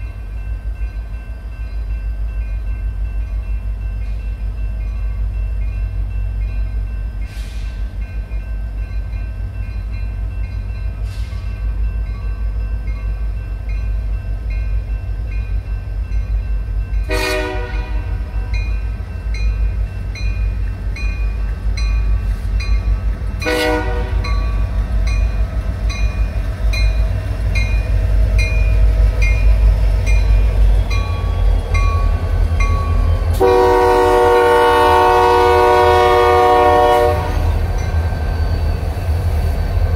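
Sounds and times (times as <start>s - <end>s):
crossing bell ringing: 0.0s - 39.9s
diesel locomotive rumbling: 0.0s - 39.9s
train air horn blasts: 17.1s - 18.3s, 23.4s - 24.4s, 33.4s - 37.6s.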